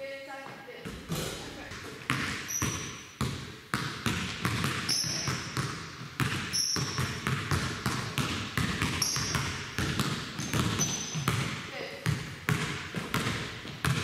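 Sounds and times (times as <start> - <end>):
basketball bouncing on wooden floor: 0.4 - 14.0
sneaker squeaks on floor: 0.8 - 3.2, 4.1 - 5.6, 6.2 - 7.6, 8.8 - 11.5.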